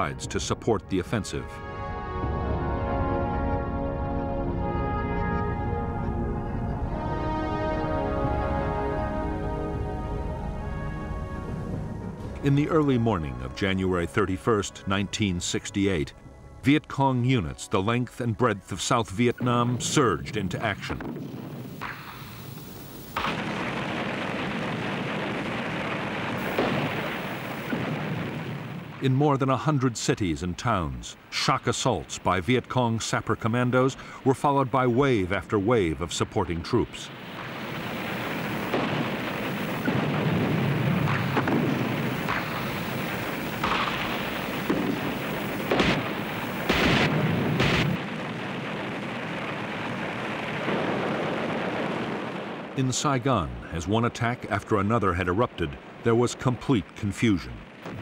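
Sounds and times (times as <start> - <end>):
explosions: 19.3 - 29.1, 36.2 - 52.8, 57.6 - 58.0
gunfire bangs: 23.2 - 29.0, 37.2 - 52.6.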